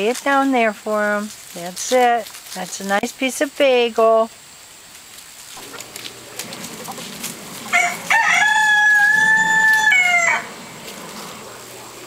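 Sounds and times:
rooster crowing: 6.5s - 11.0s.

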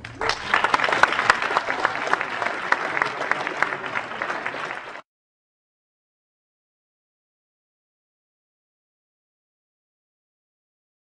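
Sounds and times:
audience clapping: 0.0s - 5.1s.

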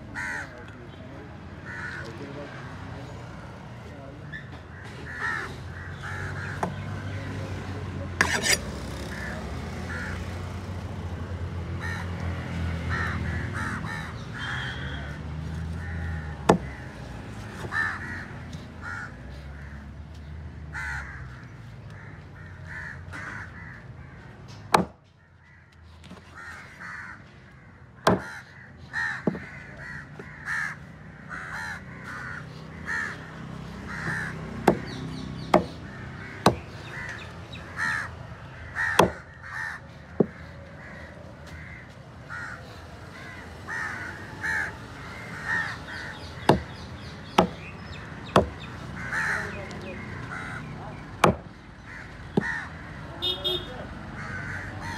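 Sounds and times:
birds calling: 0.0s - 54.9s
knife chopping on wooden board: 24.7s - 25.0s, 28.1s - 28.3s, 29.2s - 29.4s, 34.6s - 35.7s, 36.4s - 36.6s, 39.0s - 39.2s, 46.5s - 47.6s, 48.3s - 48.6s, 51.2s - 51.5s.

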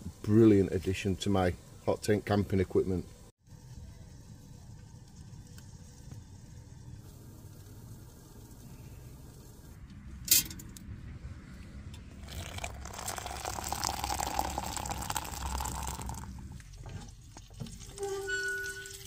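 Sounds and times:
water pouring into metal mug: 12.2s - 16.5s, 17.3s - 19.0s.

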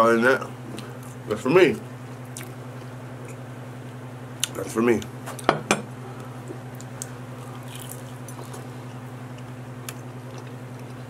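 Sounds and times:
steady low hum: 0.0s - 11.0s
wet chewing mouth sounds: 6.7s - 11.0s.

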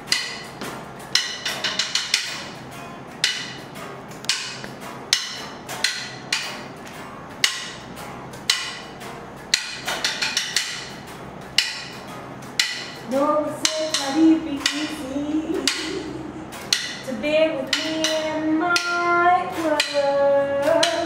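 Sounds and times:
bass guitar: 0.0s - 21.0s
drumsticks clicked together: 13.6s - 15.0s.

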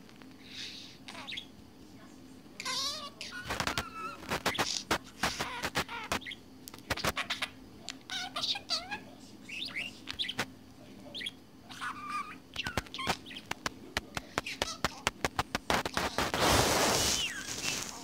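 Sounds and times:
budgerigar chattering: 2.6s - 10.5s, 11.1s - 16.4s.

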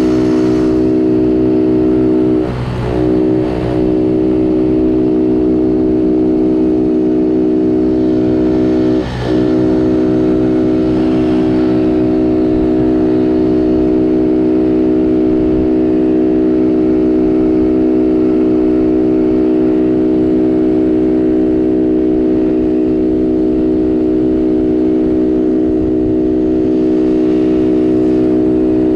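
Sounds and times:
small engine running: 0.0s - 28.9s.

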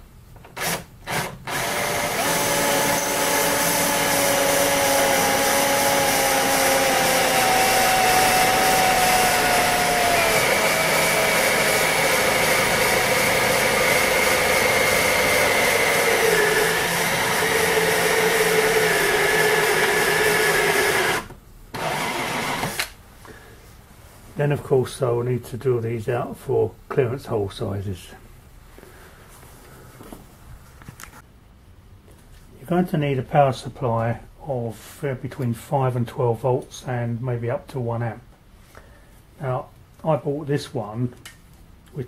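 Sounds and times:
electric drill drilling into metal: 0.6s - 23.0s.

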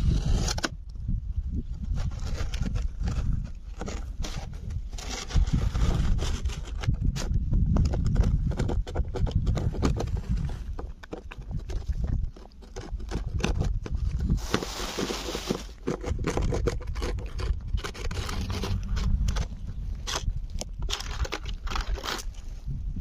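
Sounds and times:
cat chewing crunching: 7.9s - 14.2s, 15.7s - 22.3s
low rumble: 17.5s - 21.8s.

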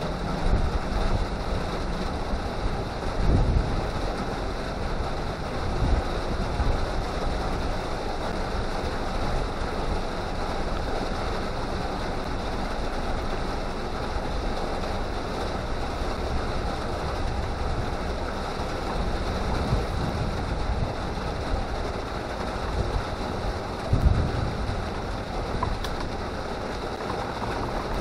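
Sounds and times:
water rushing: 0.0s - 28.0s
wind buffeting microphone: 2.6s - 3.9s, 17.2s - 28.0s.

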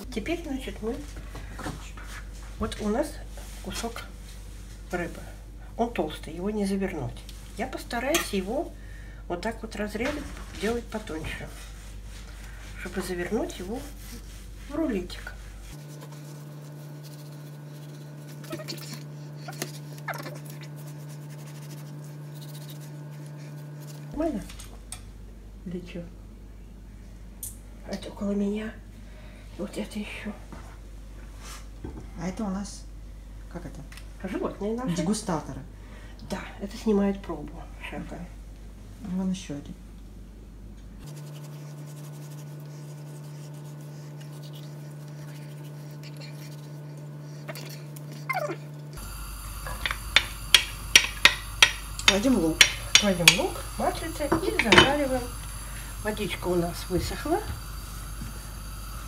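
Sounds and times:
steady low hum: 0.0s - 59.0s
dog whining: 18.4s - 20.7s, 47.4s - 48.8s.

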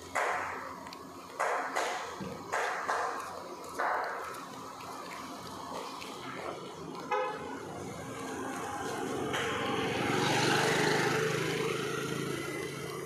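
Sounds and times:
vehicle passing by: 5.6s - 13.0s
vehicle horn toot: 7.1s - 7.5s.

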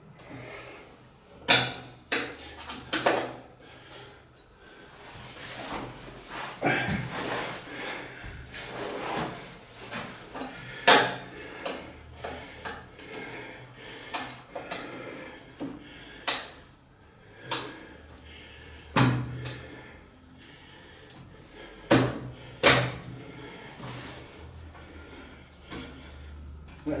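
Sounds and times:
sharp clicks and knocks on metal frame: 1.4s - 3.4s.

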